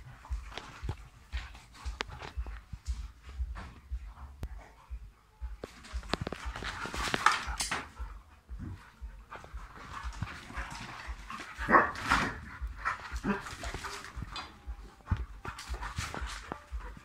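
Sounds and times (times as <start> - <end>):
dog barking: 11.1 - 13.7.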